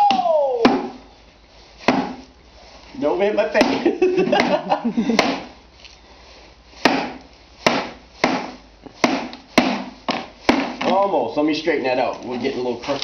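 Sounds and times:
hammer striking nails: 1.9 - 2.2, 3.6 - 5.5, 6.8 - 11.0.

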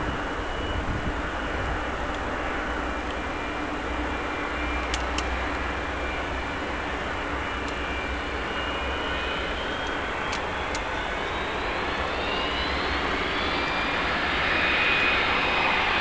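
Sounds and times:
faint high whine: 0.0 - 16.0
jet engines running: 0.0 - 16.0.

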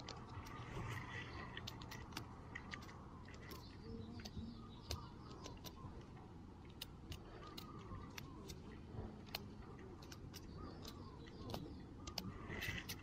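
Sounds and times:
fingers scraping dry dirt: 6.7 - 13.0.

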